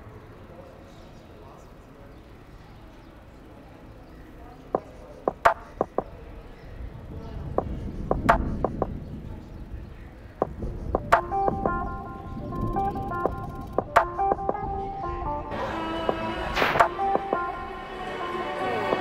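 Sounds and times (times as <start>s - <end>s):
wind rumble on microphone: 6.1s - 15.6s
plucked guitar music: 11.0s - 17.9s.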